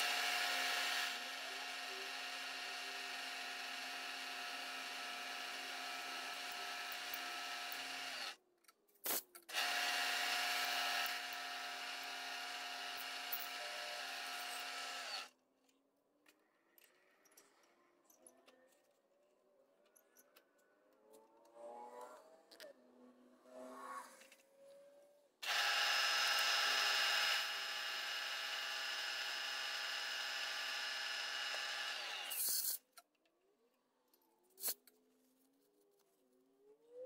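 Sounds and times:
milling machine spindle humming: 25.4 - 32.4.

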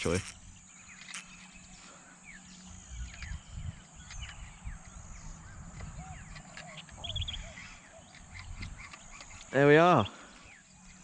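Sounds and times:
high insect trill: 0.0 - 3.6.

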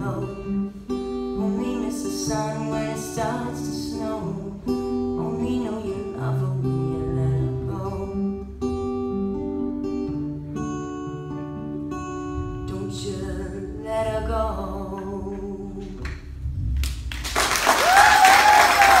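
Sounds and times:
person singing: 0.0 - 8.6, 12.6 - 16.1
acoustic guitars: 0.0 - 17.4
audience applause: 16.8 - 19.0.

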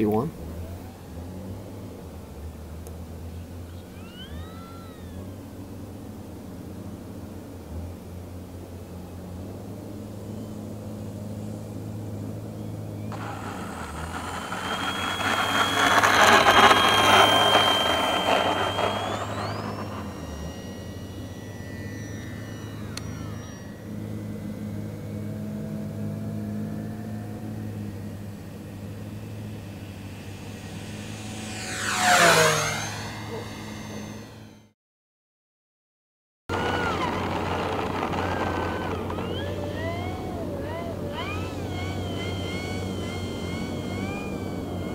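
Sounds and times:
model plane propeller whine: 0.0 - 34.7, 36.5 - 44.9
steady low hum: 13.0 - 26.2.

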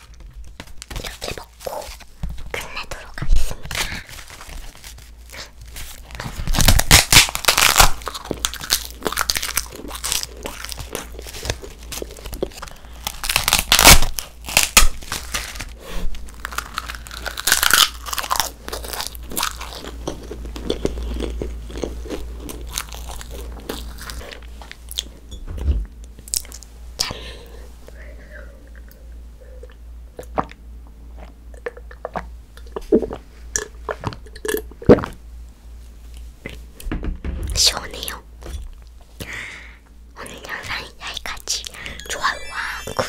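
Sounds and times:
crisp paper bites crackling: 0.0 - 19.9
soft chewing: 16.5 - 25.2.

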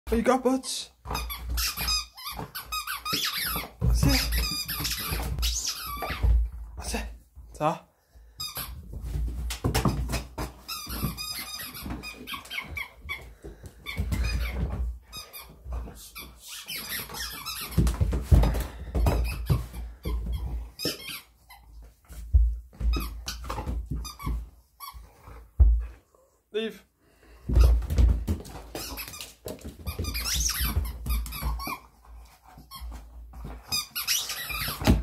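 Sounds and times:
squeaky toy squeaking: 1.1 - 6.2, 16.4 - 17.8, 29.9 - 31.9, 33.7 - 35.0.

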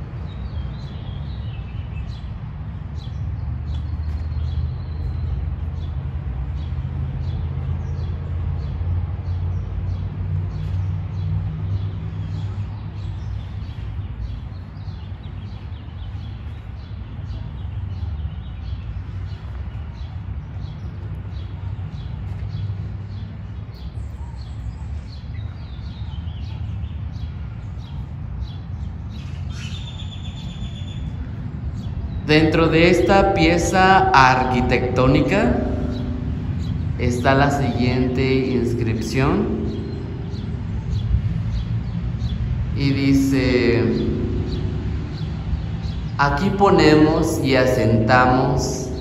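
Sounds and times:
small birds chirping: 0.1 - 49.0
steady low rumble: 31.0 - 49.0.

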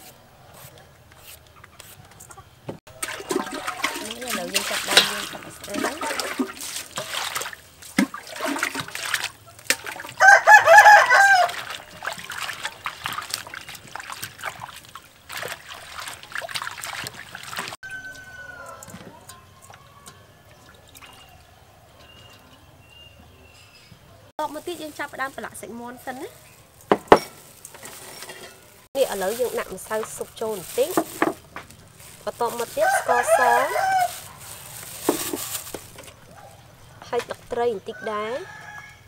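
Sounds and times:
hands splashing in water bowl: 2.9 - 17.8
rooster crowing: 10.2 - 11.9, 17.8 - 20.4, 32.8 - 34.4, 37.9 - 39.0.

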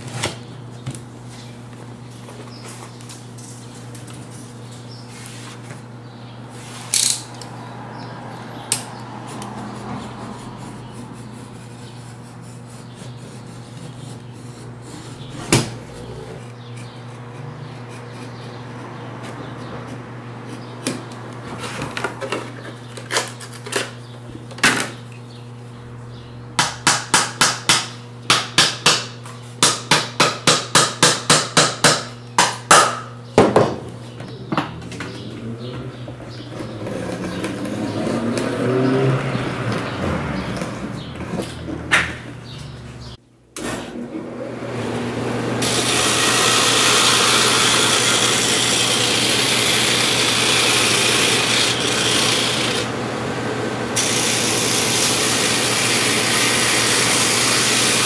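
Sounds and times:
utility knife cutting board: 13.8 - 16.4, 45.6 - 52.9.

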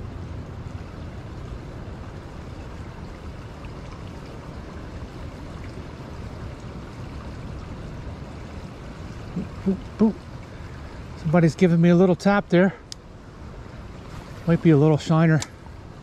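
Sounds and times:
wind rumble on microphone: 0.0 - 12.4
creek water flowing: 0.0 - 16.0.

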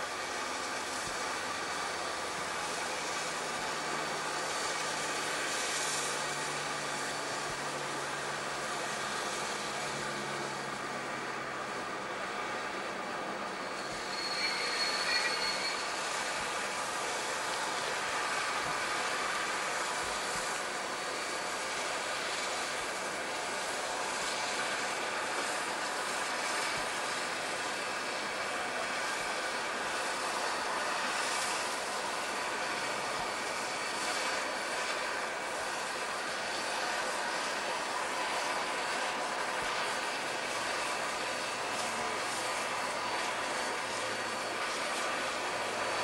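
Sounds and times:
steam locomotive hissing: 0.0 - 46.0
high-pitched squeal: 13.6 - 16.3.

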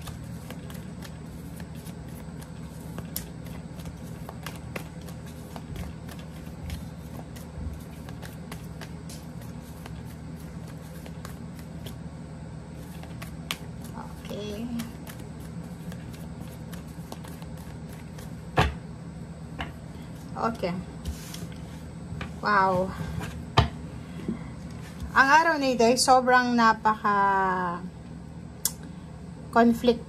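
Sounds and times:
cards being shuffled by hand: 0.0 - 12.0, 12.7 - 18.6
steady low hum: 0.0 - 30.0.

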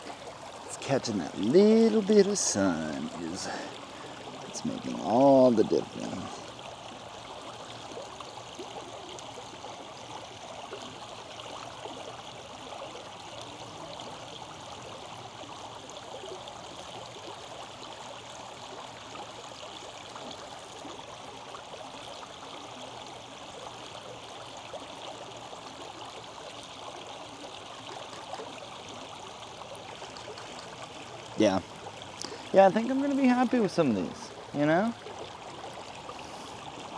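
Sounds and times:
creek flowing over rocks: 0.0 - 36.9.

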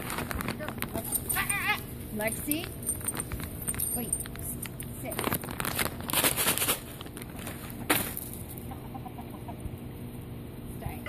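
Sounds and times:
crackling: 0.0 - 1.5
chickens clucking softly: 8.6 - 9.8.

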